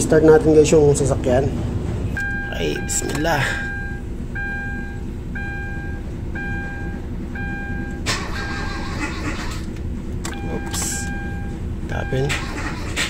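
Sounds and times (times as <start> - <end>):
dashboard warning chime beeping: 2.2 - 8.9, 10.2 - 12.8.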